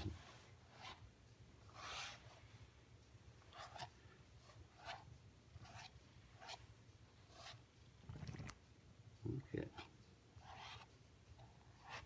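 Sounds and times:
brush swishing through fur: 0:00.0 - 0:02.7.

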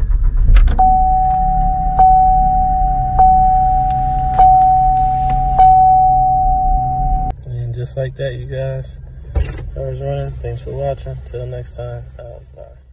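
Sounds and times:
car engine rumble: 0:00.0 - 0:12.9
dashboard warning chime: 0:00.8 - 0:07.3.

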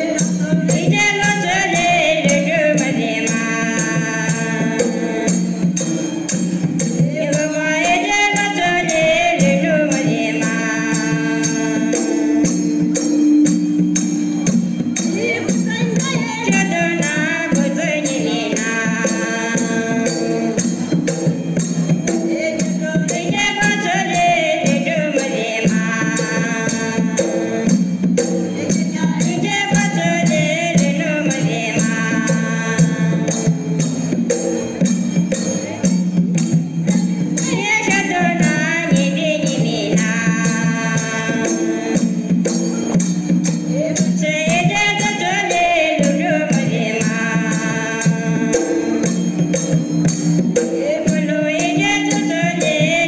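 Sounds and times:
voices singing: 0:00.0 - 0:13.6, 0:15.0 - 0:53.0
jingling percussion: 0:00.0 - 0:53.0.

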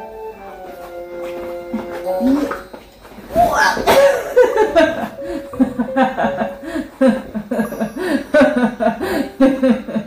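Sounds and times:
woman laughing in chuckles: 0:03.6 - 0:10.0.

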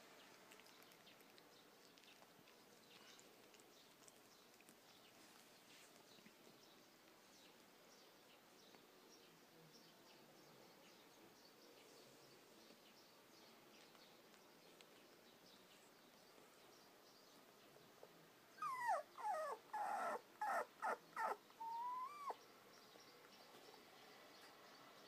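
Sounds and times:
puppy whining: 0:18.5 - 0:22.4.

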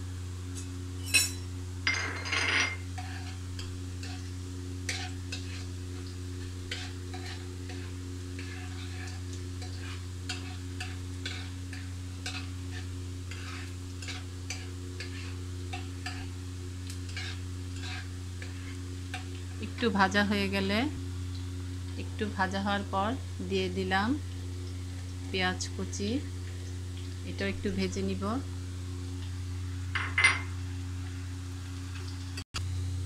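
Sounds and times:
steady low hum: 0:00.0 - 0:33.0
spatula scraping pan: 0:02.8 - 0:19.4
garlic sizzling in oil: 0:02.8 - 0:32.9.

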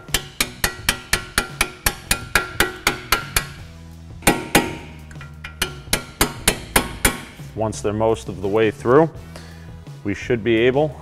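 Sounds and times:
hammer striking metal punch: 0:00.0 - 0:03.6, 0:04.2 - 0:07.5.

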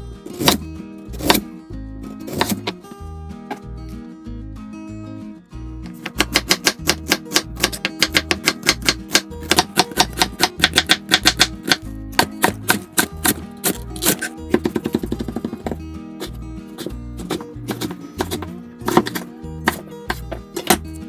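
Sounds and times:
acoustic guitar music: 0:00.0 - 0:21.0
knife chopping on wooden board: 0:00.4 - 0:01.4, 0:02.3 - 0:02.8, 0:05.9 - 0:20.9.

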